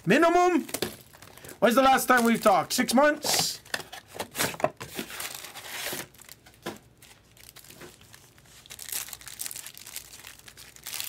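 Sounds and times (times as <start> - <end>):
foil packs crinkling: 0.5 - 2.6, 3.5 - 11.0.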